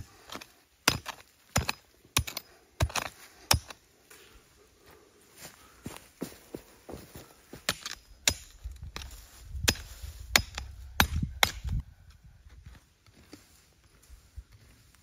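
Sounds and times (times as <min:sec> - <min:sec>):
hand tool chopping wood: 0:00.3 - 0:03.8, 0:07.6 - 0:11.8.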